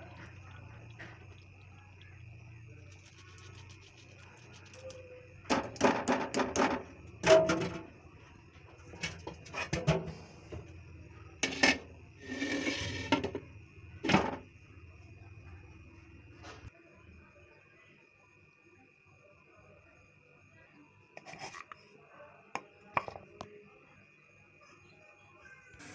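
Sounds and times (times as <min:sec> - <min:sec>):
spoon knocking against pot: 0:22.6 - 0:23.2.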